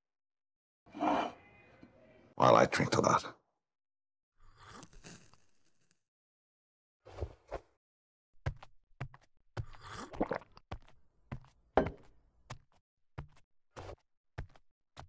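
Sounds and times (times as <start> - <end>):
footsteps on a hard floor: 8.5 - 15.0.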